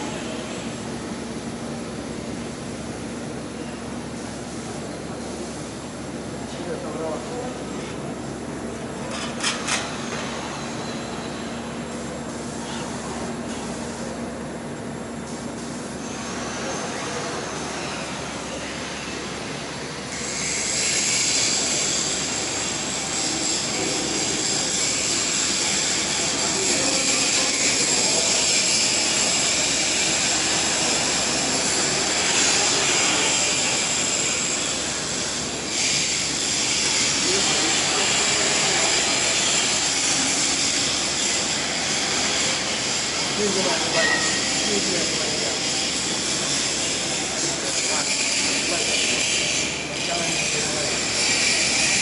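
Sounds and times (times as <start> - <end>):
low factory hum: 0.0 - 52.0
welding arc hissing: 15.2 - 52.0.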